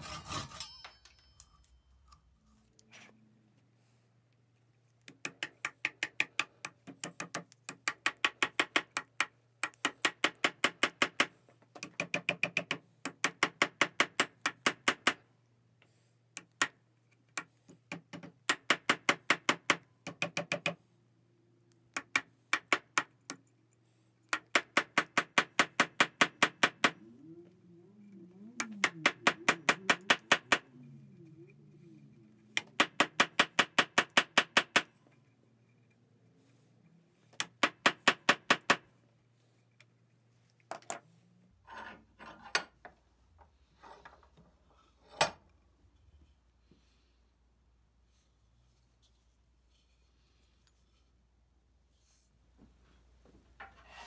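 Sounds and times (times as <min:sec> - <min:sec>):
small hammer tapping wooden wedge: 0:05.0 - 0:15.2, 0:16.3 - 0:20.8, 0:21.9 - 0:23.5, 0:24.2 - 0:27.0, 0:28.6 - 0:30.7, 0:32.5 - 0:34.9, 0:37.3 - 0:38.8.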